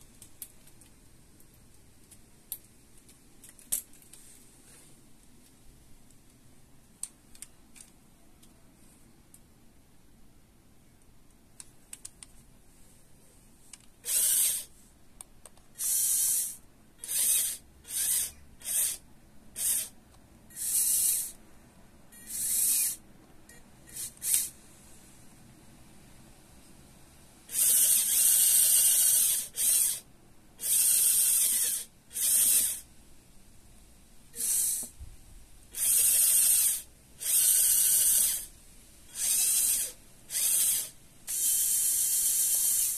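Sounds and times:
electric motor whirring: 14.0s - 14.7s, 15.8s - 19.0s, 19.6s - 19.9s, 20.5s - 21.4s, 22.2s - 23.0s, 27.5s - 30.0s, 30.6s - 32.8s, 35.8s - 38.5s, 39.1s - 42.9s.

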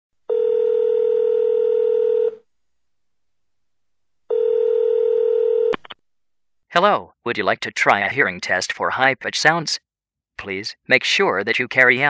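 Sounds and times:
telephone ringback tone: 0.3s - 2.4s, 4.3s - 5.8s.

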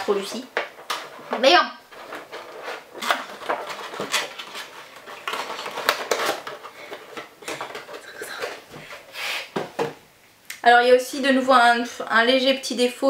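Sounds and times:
packaging clicks taps and rustles: 1.9s - 9.0s.

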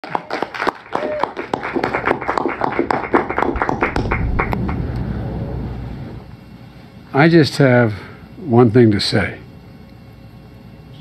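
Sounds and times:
audience clapping and cheering: 0.0s - 5.7s
person whooping: 0.9s - 1.4s.

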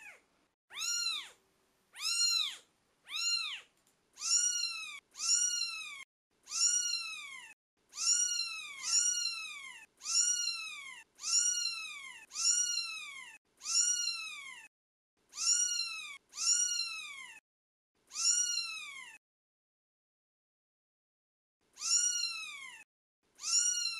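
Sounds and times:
kitten meowing: 0.0s - 1.4s, 2.0s - 14.7s, 15.3s - 17.4s, 18.1s - 19.2s, 21.8s - 22.8s, 23.4s - 23.9s.

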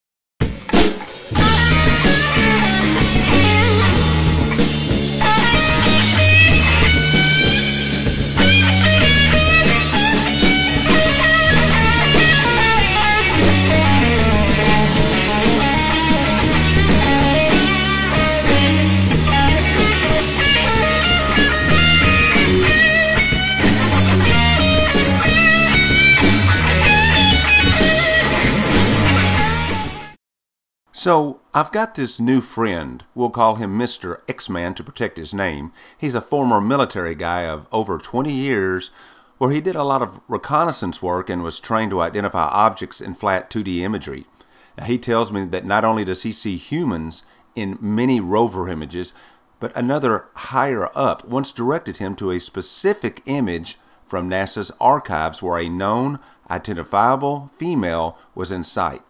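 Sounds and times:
instrumental rock music: 0.4s - 30.2s.

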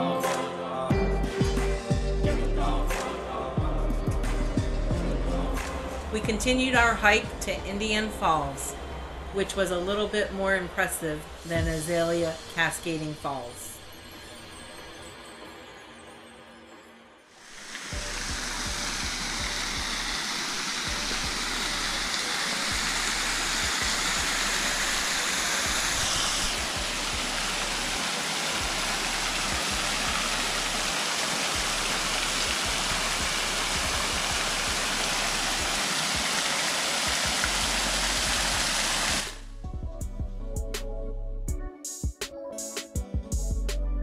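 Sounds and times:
small waterfall splashing: 17.4s - 39.4s.

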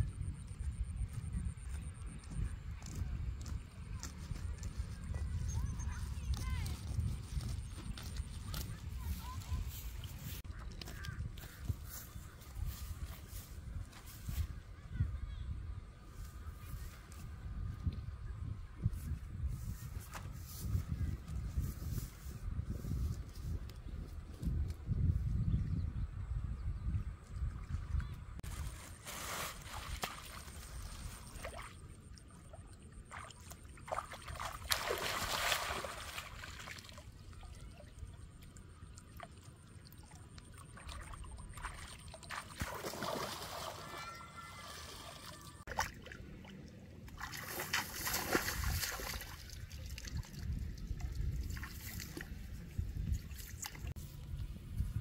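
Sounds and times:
muddy water splashing: 27.2s - 54.4s.

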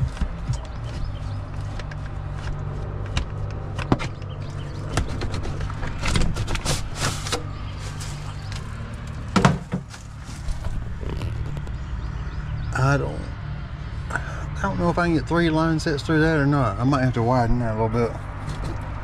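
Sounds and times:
plastic scraping: 0.0s - 11.8s.

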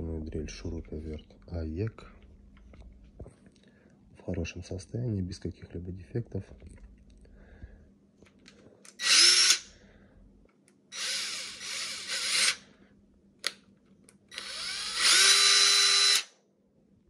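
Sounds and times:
cordless drill whining: 9.0s - 9.7s, 10.9s - 12.6s, 14.3s - 16.3s.

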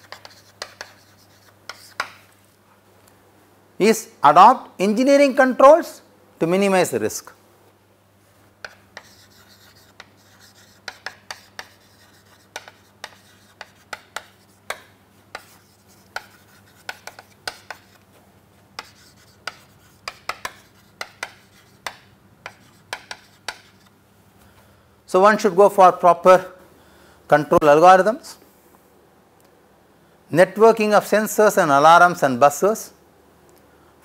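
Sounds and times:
chalk writing on a chalkboard: 0.0s - 2.2s, 8.6s - 18.2s, 18.8s - 23.9s.

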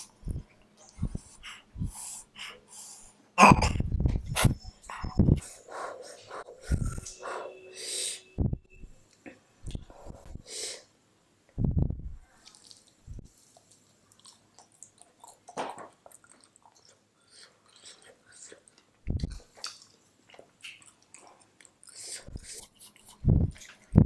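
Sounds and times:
person chewing food: 12.3s - 24.0s.

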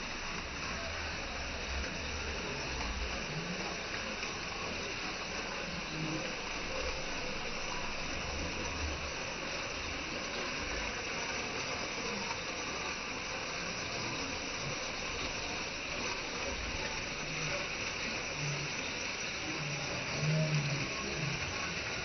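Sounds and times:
waterfall over rocks: 0.0s - 22.0s.

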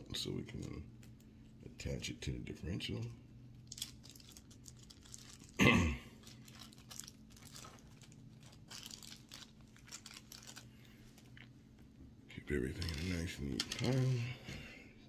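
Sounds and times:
plastic bag crinkling: 3.6s - 11.5s, 12.7s - 14.2s.

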